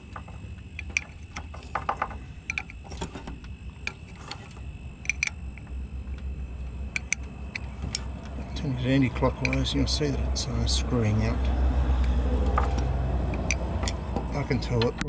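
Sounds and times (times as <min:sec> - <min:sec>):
low steady rumble: 0:00.0 - 0:15.0
spanner clicking on nut: 0:00.8 - 0:03.2, 0:03.8 - 0:05.6, 0:06.9 - 0:08.1, 0:09.2 - 0:10.0, 0:12.0 - 0:15.0.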